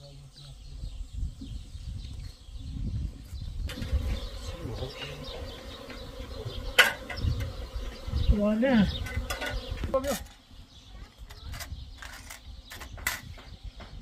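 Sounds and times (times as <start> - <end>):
bees buzzing: 3.7 - 10.2.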